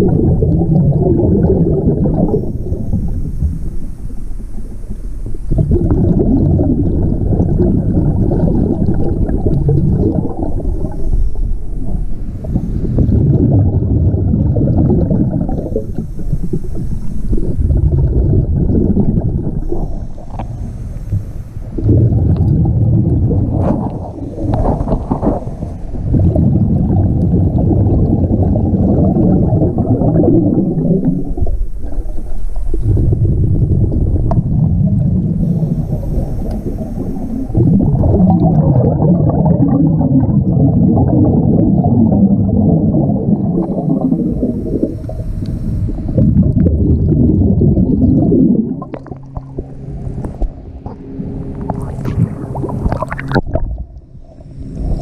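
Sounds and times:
exhaled bubbles rumbling: 0.0s - 55.0s
regulator inhale hiss: 2.2s - 5.6s, 10.4s - 13.2s, 15.5s - 17.9s, 19.4s - 21.9s, 24.0s - 26.1s, 35.3s - 37.8s, 43.6s - 46.3s, 54.3s - 55.0s.

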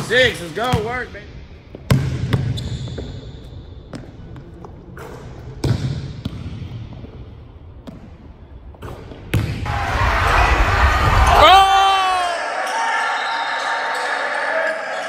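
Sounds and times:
basketball bouncing on wooden floor: 1.7s - 8.2s.

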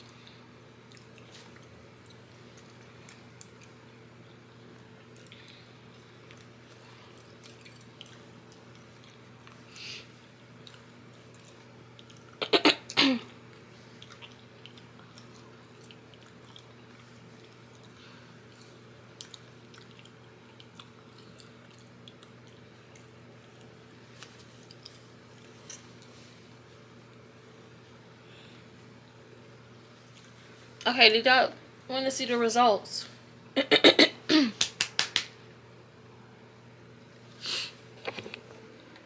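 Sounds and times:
person coughing: 12.4s - 13.3s, 33.6s - 34.6s.

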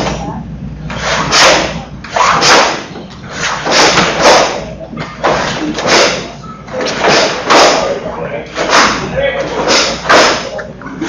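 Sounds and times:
sharp hissing swishes: 0.9s - 4.6s.

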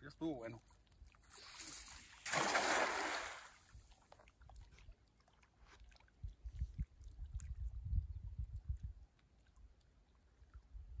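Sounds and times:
net splashing onto water: 1.3s - 3.7s.

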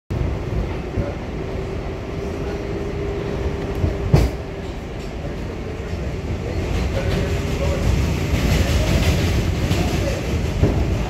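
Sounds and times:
train wheels rumbling on rail: 0.1s - 11.0s
loud clunk: 3.8s - 4.8s.

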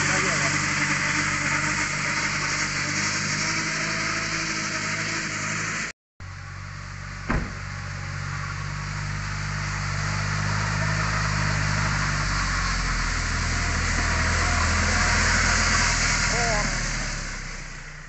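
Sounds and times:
tractor diesel engine: 0.0s - 18.0s
sharp knock: 7.3s - 7.7s.

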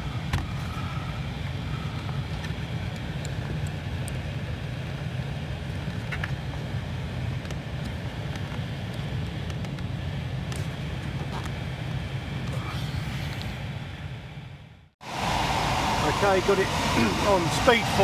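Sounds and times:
blower fan motor humming: 15.0s - 18.0s.

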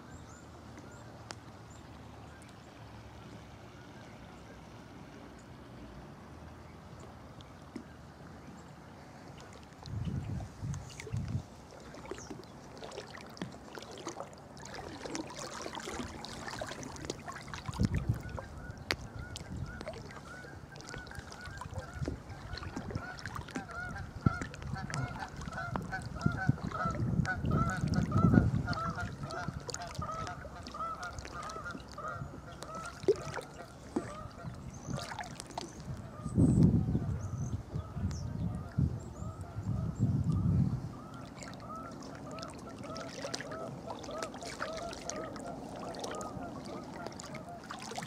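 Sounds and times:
water sloshing around waders: 0.0s - 48.0s
geese honking: 20.2s - 34.5s, 41.1s - 47.9s.

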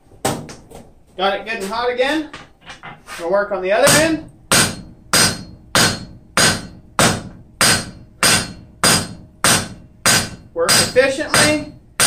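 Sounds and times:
hammer ringing on hot steel: 3.9s - 12.0s.

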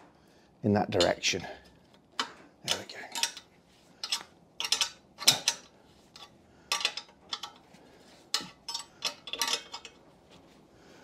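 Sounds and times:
spanner clinking on metal bolt: 2.2s - 7.6s, 8.4s - 10.0s.

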